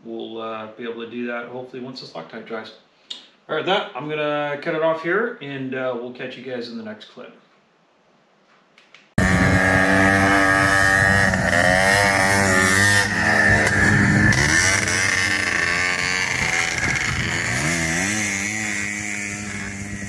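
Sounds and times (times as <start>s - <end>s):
buggy engine revving: 9.2s - 20.0s.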